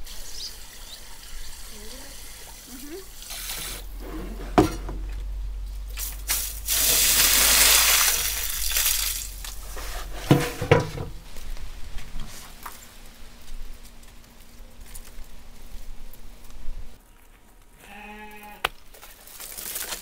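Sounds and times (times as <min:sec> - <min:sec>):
water splashing onto ground: 0:05.9 - 0:09.6, 0:18.9 - 0:20.0.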